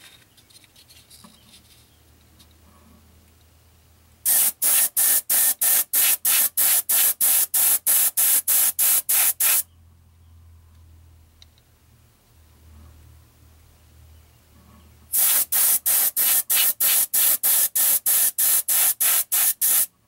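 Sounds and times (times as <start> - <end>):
airbrush spraying in pulses: 4.2 - 9.6, 15.1 - 19.9.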